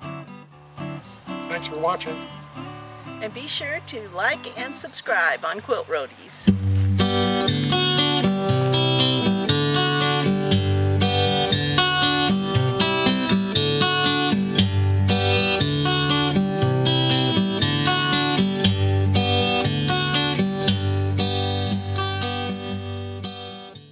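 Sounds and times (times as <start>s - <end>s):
plucked guitar notes: 0.0s - 23.9s
bass line: 6.5s - 22.2s.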